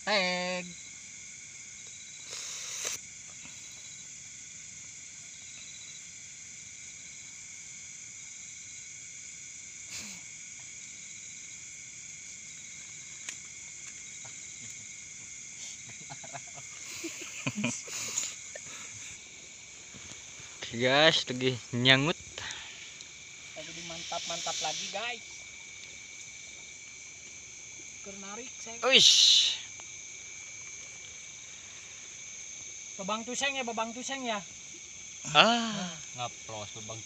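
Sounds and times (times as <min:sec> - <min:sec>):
insect chorus trilling: 0:00.0 - 0:37.0.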